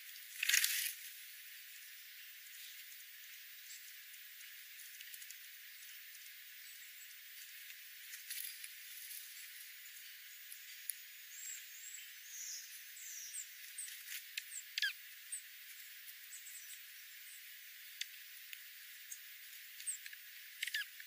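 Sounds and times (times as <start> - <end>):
high bird chip calls: 11.3 - 15.5, 19.0 - 21.0.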